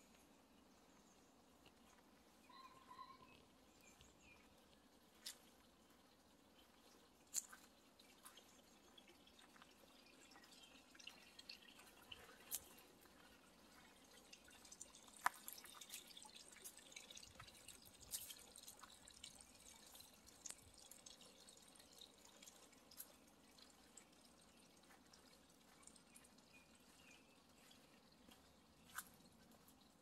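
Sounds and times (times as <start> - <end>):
light ticks and clicks: 14.4 - 21.5.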